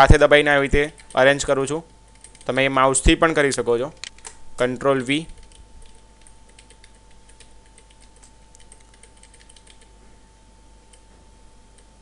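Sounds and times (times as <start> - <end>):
faint steady hum: 0.0 - 12.0
keyboard keys tapping: 2.1 - 2.5, 5.2 - 9.9.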